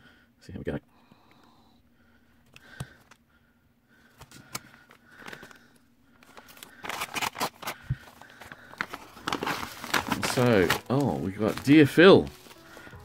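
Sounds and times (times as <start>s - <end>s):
knife slitting paper envelope: 6.3s - 13.0s.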